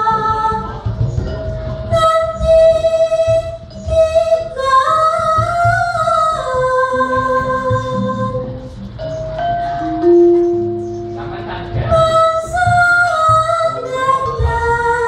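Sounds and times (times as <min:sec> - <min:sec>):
woman singing long notes: 0:00.0 - 0:00.8, 0:01.9 - 0:08.7, 0:11.9 - 0:15.0.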